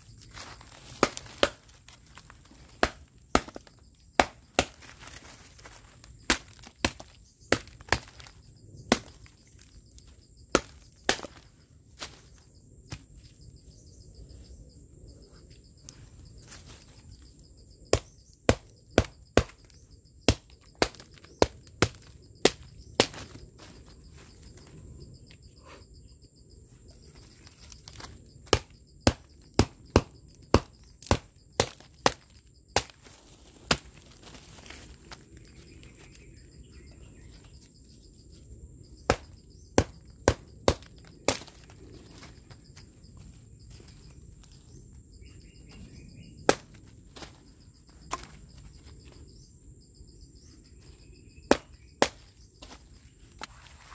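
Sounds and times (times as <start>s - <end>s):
baton striking knife through wood: 0.4s - 1.8s, 2.5s - 5.2s, 6.2s - 9.3s, 10.5s - 11.4s, 17.9s - 23.4s, 27.9s - 33.0s, 39.1s - 42.3s, 46.4s - 47.4s, 51.5s - 52.8s.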